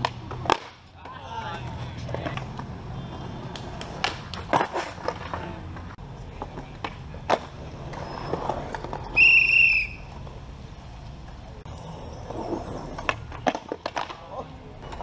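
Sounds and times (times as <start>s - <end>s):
skateboard pops and slaps: 0.0s - 2.7s, 3.5s - 5.5s, 6.4s - 7.6s, 13.0s - 15.0s
skateboard wheels rolling on concrete: 0.0s - 15.0s
short high whistle: 9.1s - 10.1s.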